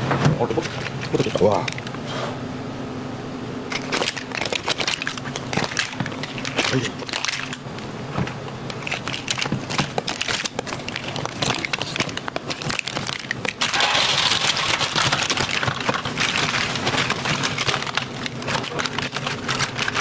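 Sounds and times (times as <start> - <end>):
shells clattering in metal basin: 10.2 - 20.0.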